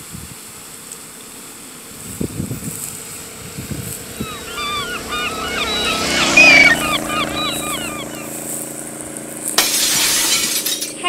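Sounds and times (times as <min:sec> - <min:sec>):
motor hum: 0:02.8 - 0:08.7
birds chirping: 0:03.7 - 0:08.5.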